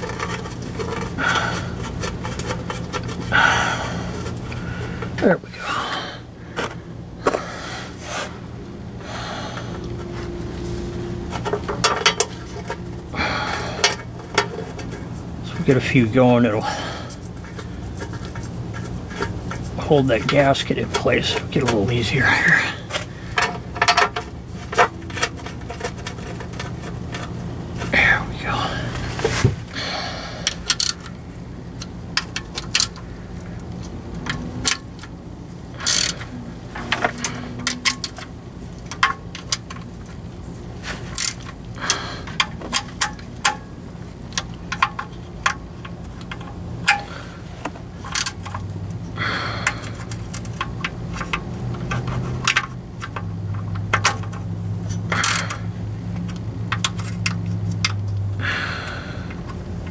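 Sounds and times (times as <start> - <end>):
low hum: 0.0 - 59.9
ratchet and metal tools clicking: 30.4 - 31.1, 35.7 - 39.9, 41.1 - 43.6, 48.0 - 48.9, 49.6 - 58.2.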